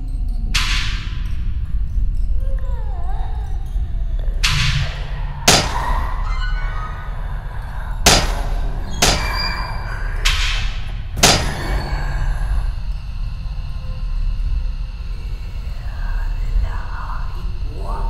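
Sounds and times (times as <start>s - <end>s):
dramatic music drone: 3.6s - 18.0s
sharp crashing hits: 4.4s - 6.1s.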